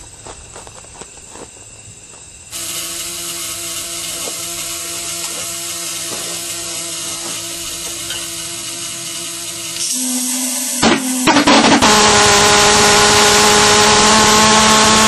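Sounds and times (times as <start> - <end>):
jet hiss: 2.5 - 15.0
pulsejet engine buzzing drone: 2.5 - 15.0
pulsejet engine pops: 10.8 - 15.0.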